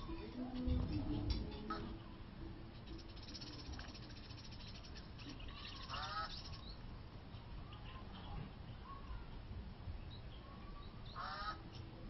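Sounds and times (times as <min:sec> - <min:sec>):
high bird twittering: 0:02.8 - 0:06.8
nasal honking bird call: 0:11.2 - 0:11.6.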